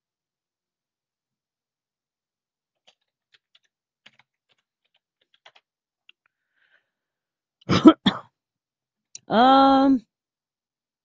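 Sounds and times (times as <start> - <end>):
keyboard and mouse clicks: 2.7 - 6.3.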